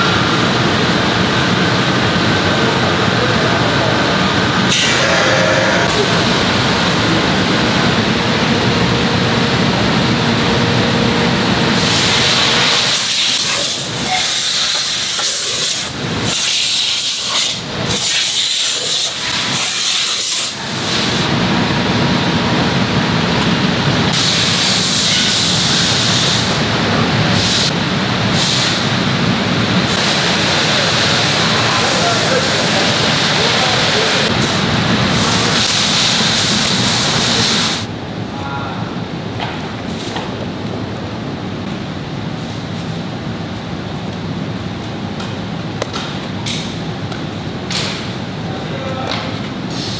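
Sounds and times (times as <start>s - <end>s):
low machine hum: 0.0s - 14.1s.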